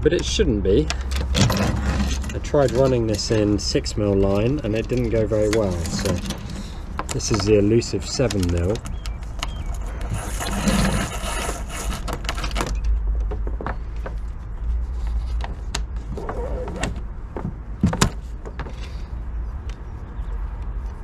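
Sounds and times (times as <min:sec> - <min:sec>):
clicks and knocks of fittings: 0:00.2 - 0:03.5, 0:04.2 - 0:10.2
rope rasping through fittings: 0:00.9 - 0:12.6.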